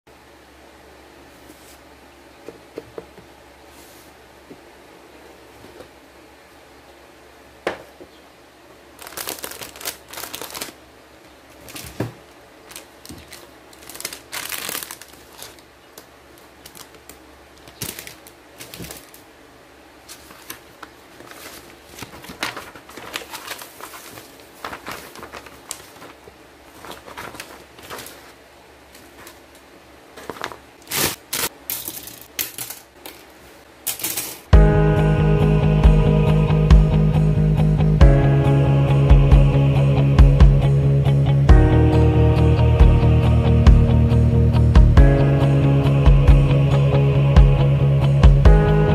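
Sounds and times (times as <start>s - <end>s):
paper and cardboard rustling: 9.0s - 10.8s, 11.5s - 19.3s, 20.0s - 29.5s, 30.1s - 34.5s
plastic parts clicking: 30.2s - 33.3s.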